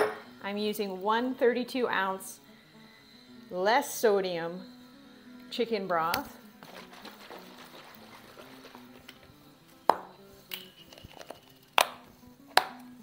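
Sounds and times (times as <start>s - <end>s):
soft background music: 0.0s - 13.0s
plastic cap snapping open: 9.9s - 12.8s.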